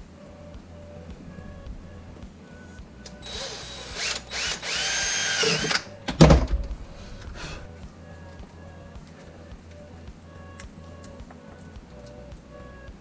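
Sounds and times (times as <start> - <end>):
cordless drill whine: 3.2 - 5.9.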